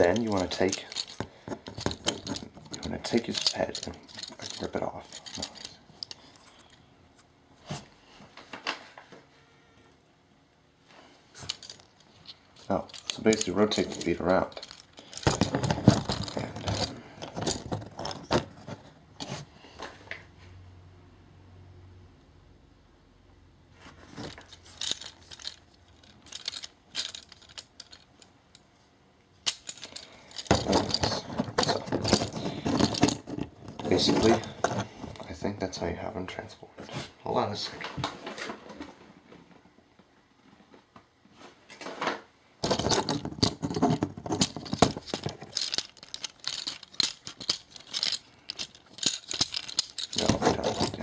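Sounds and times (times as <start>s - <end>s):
plastic toy parts clicking: 0.0s - 6.2s, 12.6s - 18.4s, 24.2s - 28.1s, 42.6s - 51.0s.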